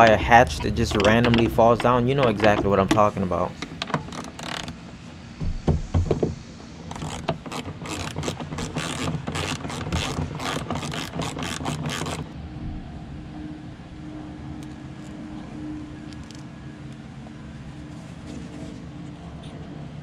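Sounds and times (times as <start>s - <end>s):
tool knocking: 0.0s - 4.2s, 5.4s - 6.4s
faint steady hum: 12.0s - 20.0s.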